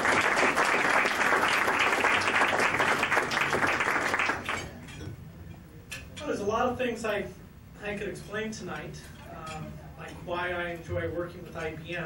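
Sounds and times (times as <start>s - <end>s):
audience applauding: 0.0s - 4.7s.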